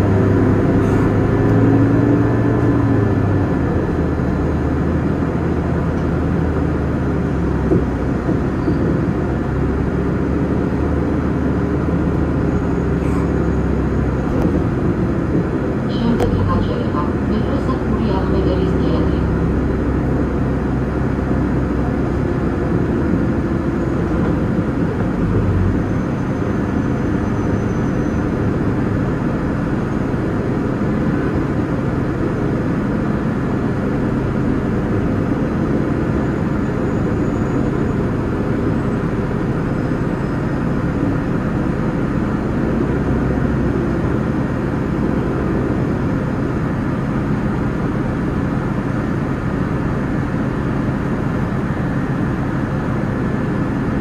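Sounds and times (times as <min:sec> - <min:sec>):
bus engine drone: 0:00.0 - 0:54.0
rumbling road noise: 0:00.0 - 0:54.0.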